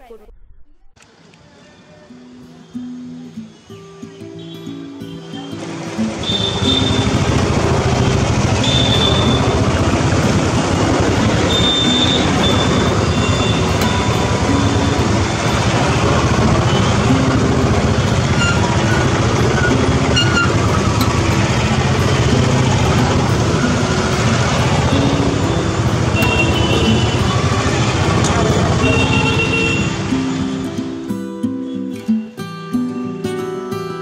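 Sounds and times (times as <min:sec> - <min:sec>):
street traffic: 0:00.0 - 0:34.0
motorcycle engines running: 0:05.4 - 0:30.7.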